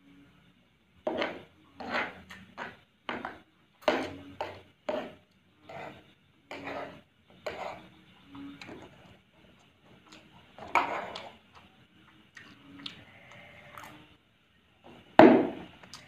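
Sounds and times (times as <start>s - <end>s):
noisy eating mouth sounds: 12.3s - 14.1s.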